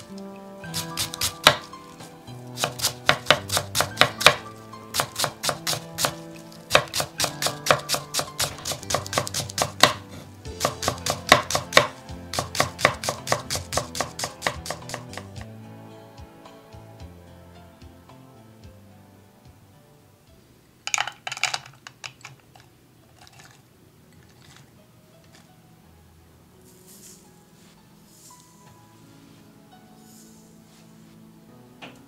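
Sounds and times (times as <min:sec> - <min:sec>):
knife chopping on wooden board: 0:00.7 - 0:01.7, 0:02.6 - 0:15.4.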